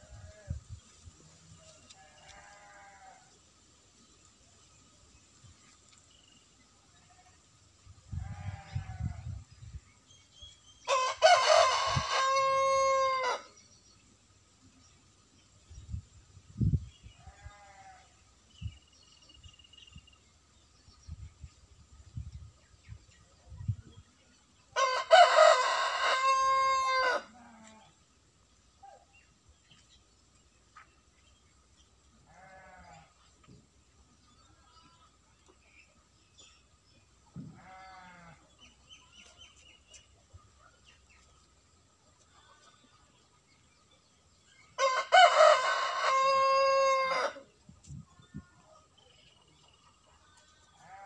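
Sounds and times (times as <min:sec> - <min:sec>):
rooster crowing: 0:10.9 - 0:13.5, 0:24.8 - 0:27.4, 0:44.8 - 0:47.5.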